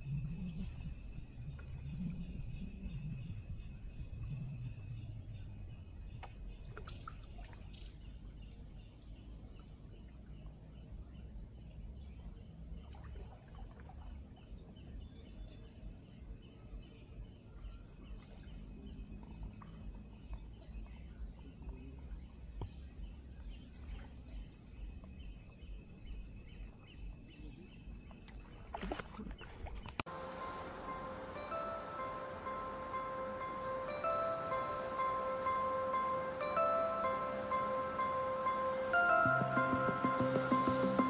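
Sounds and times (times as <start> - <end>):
high-pitched chirp: 30.1 - 41.0
lower notes: 30.1 - 41.0.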